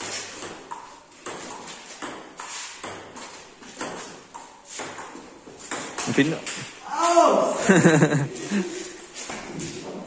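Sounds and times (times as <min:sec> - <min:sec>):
table tennis ball hits: 0:00.0 - 0:07.6
ball bouncing on table: 0:00.4 - 0:07.3.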